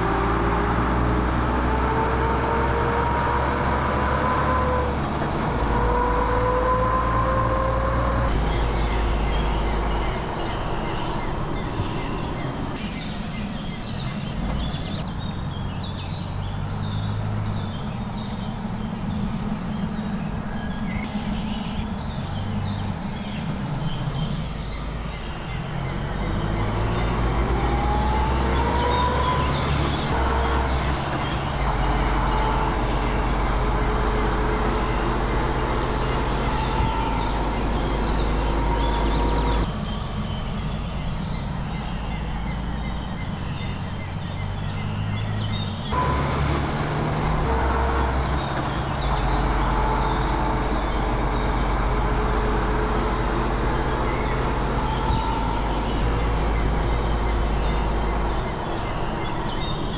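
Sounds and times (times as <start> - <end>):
truck diesel engine under load: 0.0 - 59.9.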